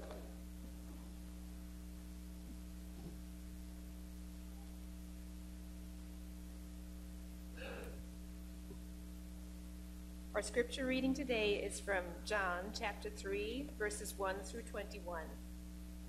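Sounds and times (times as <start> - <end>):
electrical mains hum: 0.0 - 16.0.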